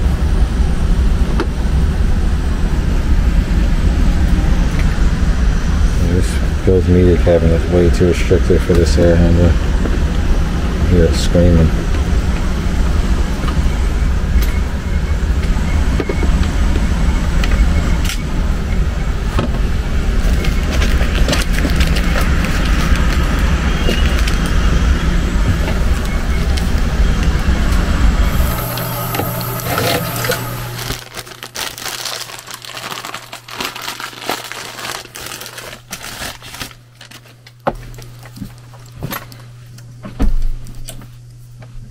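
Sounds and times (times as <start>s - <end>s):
blower air rushing: 0.0s - 31.2s
steady low hum: 0.0s - 41.9s
handling clicks and crinkles: 20.1s - 24.8s, 28.4s - 39.9s.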